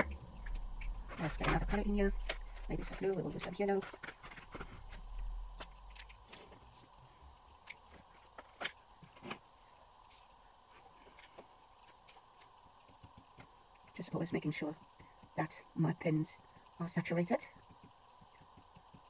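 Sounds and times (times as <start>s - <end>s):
paint pens clicking and tapping: 11.2s - 19.0s.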